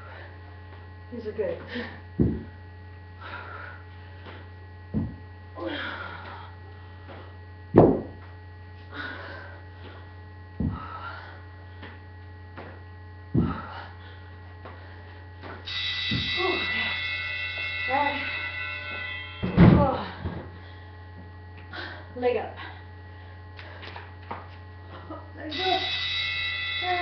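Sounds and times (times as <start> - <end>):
electrical hum: 0.0 - 27.0
foot thudding on concrete floor: 2.2 - 2.6, 4.2 - 5.3, 7.0 - 8.4, 9.8 - 11.0, 11.8 - 13.8
hard breathing: 3.2 - 4.5, 8.8 - 12.0, 13.4 - 15.3.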